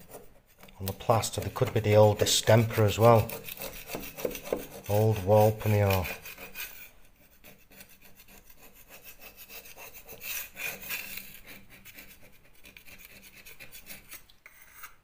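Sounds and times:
metal scraper rasping on plaster: 0:00.0 - 0:15.0.

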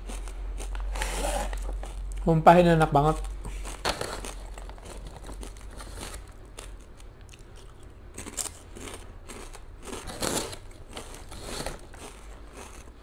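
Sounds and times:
crunching and chewing crisps: 0:00.0 - 0:02.4, 0:03.1 - 0:13.0.

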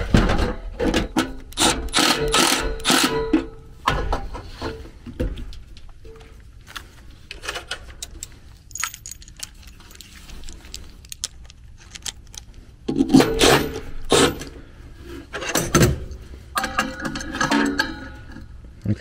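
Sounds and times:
metal tools clinking and scraping: 0:07.2 - 0:12.4, 0:16.5 - 0:18.6
metal parts clattering: 0:07.3 - 0:14.4, 0:15.4 - 0:18.5.

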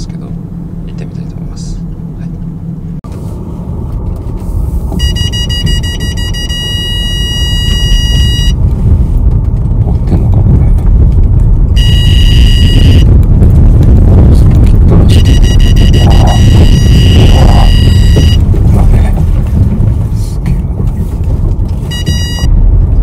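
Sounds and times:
vehicle rumble: 0:00.0 - 0:23.0
high electronic tone: 0:05.0 - 0:08.6, 0:11.8 - 0:13.1, 0:14.9 - 0:18.5, 0:21.9 - 0:22.5.

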